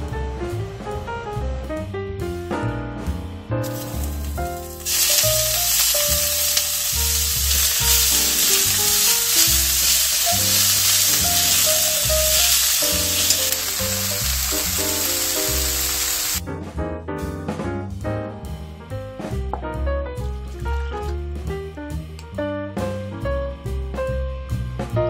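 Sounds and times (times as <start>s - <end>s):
greens sizzling in frying pan: 3.6s - 16.4s.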